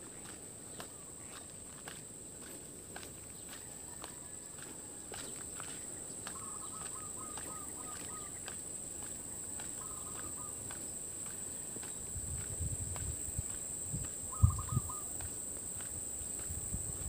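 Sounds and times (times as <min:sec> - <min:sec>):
insects buzzing: 0:04.5 - 0:17.0
bird chirping: 0:05.8 - 0:08.5, 0:09.8 - 0:10.7, 0:14.3 - 0:15.1
wind rumble on microphone: 0:12.0 - 0:15.2, 0:15.9 - 0:17.0.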